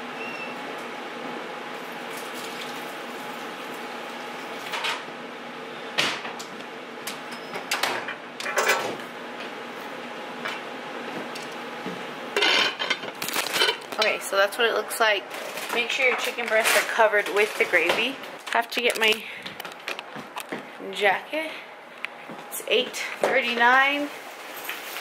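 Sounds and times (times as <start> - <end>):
pots and pans clanking: 12.4 - 13.8.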